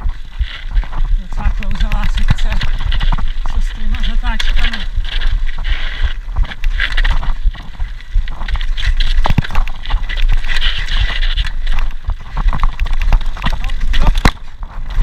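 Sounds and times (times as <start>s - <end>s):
bike tyres rolling over dirt: 0.0s - 15.0s
steady low rumble: 0.0s - 15.0s
bike knocks and rattles: 6.4s - 15.0s.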